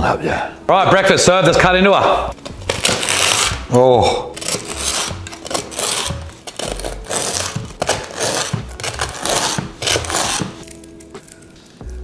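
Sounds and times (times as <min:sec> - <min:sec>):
knife sawing through crusty bread: 0:02.7 - 0:03.6, 0:04.3 - 0:10.6.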